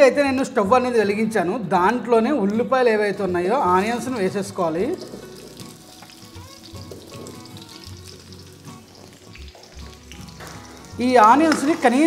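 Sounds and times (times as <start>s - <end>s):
onions sizzling in oil: 3.3s - 12.0s.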